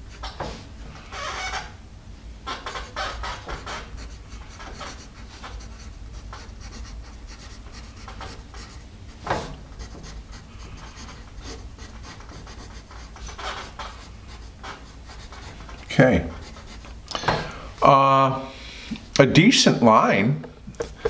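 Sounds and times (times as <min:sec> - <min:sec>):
pencil scratching on paper: 0:02.6 - 0:17.0.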